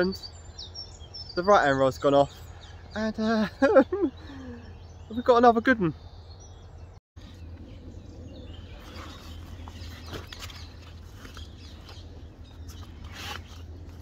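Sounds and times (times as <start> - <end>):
faint birds chirping: 0.0 - 14.0
rustling in long grass: 8.5 - 14.0.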